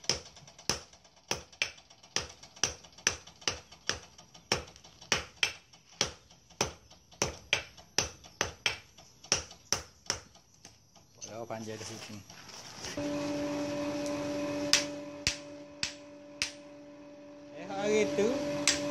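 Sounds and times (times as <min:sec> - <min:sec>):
hammer blows on hot iron: 0:13.0 - 0:17.0, 0:17.7 - 0:18.9.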